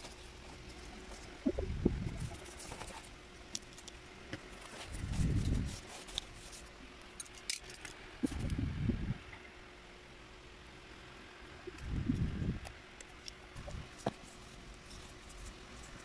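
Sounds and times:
light clicks and scrapes: 2.1 - 8.6.

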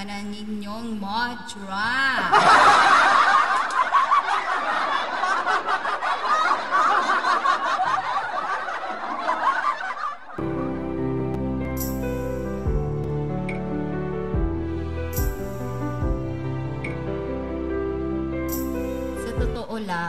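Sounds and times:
people giggling and chuckling: 2.2 - 10.6
gentle instrumental music: 10.4 - 20.0.

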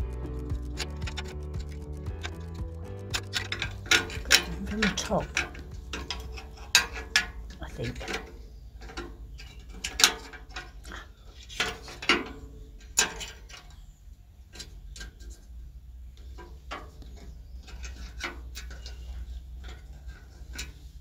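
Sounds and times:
metal clicks and knocks: 0.0 - 13.8.

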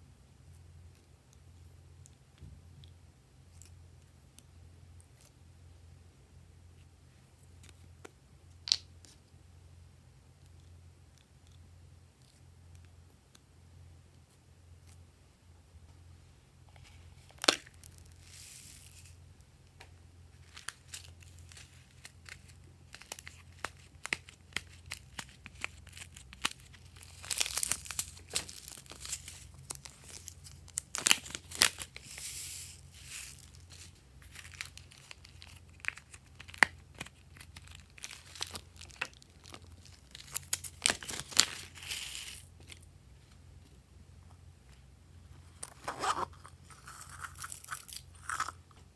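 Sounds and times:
foam beads pouring: 18.2 - 19.1, 31.5 - 35.1
plastic bag crinkling: 20.4 - 42.8.

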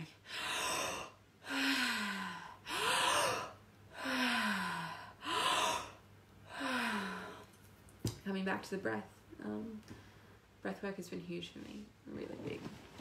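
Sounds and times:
woman breathing deeply: 0.2 - 7.6
woman gasping: 0.2 - 7.6.

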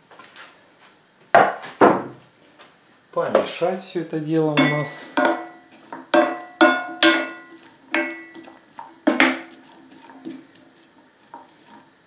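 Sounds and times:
onions frying in butter: 4.2 - 12.0
utensil knocking against pan: 4.6 - 9.6.

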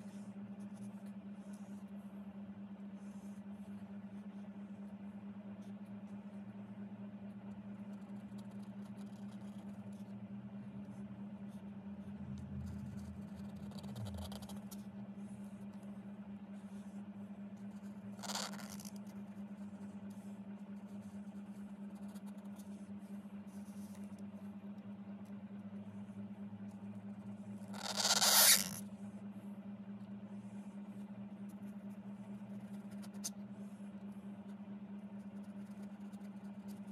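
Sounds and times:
low hum: 2.5 - 36.9
brush scraping across card: 17.6 - 24.2, 27.7 - 28.8, 35.2 - 36.9.

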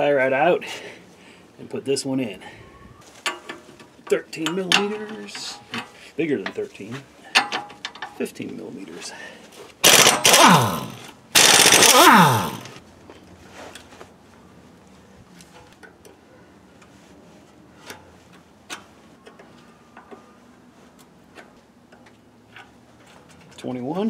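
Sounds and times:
hand tools tapping on metal: 3.2 - 6.6
pneumatic impact wrench: 9.8 - 12.8.

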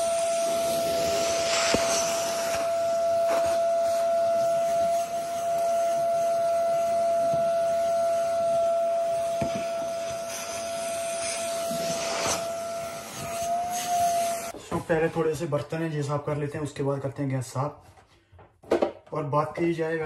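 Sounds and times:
vacuum cleaner running: 0.0 - 14.6.

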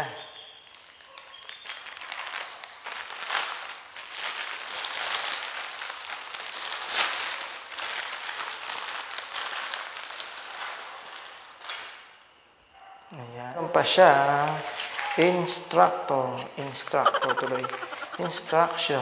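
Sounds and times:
plastic wrapping crinkling: 0.5 - 12.2.

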